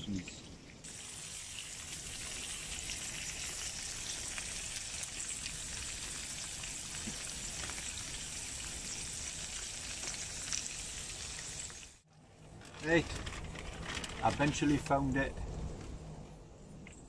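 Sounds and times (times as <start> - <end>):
sausage frying in oil: 0.0 - 12.1.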